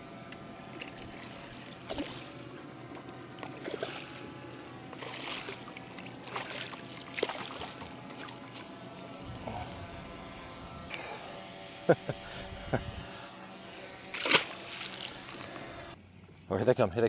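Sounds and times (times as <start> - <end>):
fish splashing at surface: 3.4 - 4.2, 5.0 - 8.4, 14.2 - 15.4.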